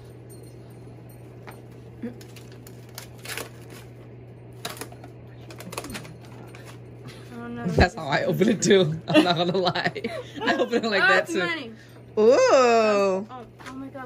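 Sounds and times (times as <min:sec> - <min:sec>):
low steady hum: 0:00.0 - 0:14.0
paper envelope tearing: 0:02.2 - 0:04.0, 0:04.6 - 0:06.6.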